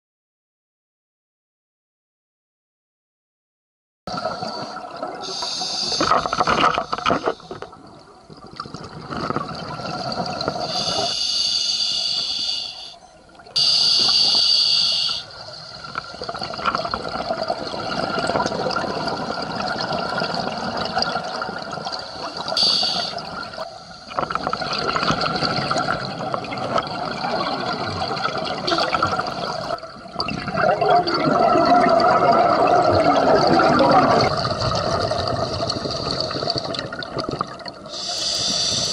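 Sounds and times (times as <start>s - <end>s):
gurgling exhaled bubbles: 4.1s - 11.2s, 13.4s - 38.9s
regulator hissing inhalations: 4.2s - 7.6s, 10.5s - 13.0s, 13.6s - 16.0s, 22.0s - 24.2s, 37.9s - 38.9s.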